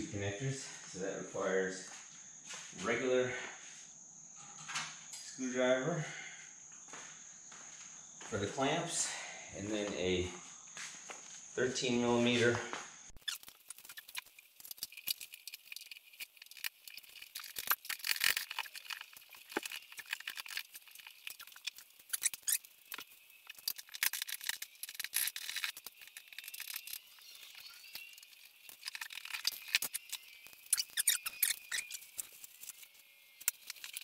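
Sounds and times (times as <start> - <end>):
metal parts clinking and scraping: 13.2 - 34.0.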